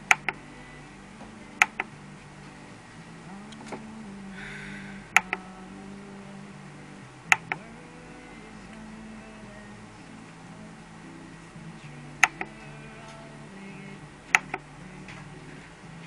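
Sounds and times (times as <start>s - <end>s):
radio knob double clicks: 12.2s - 12.5s.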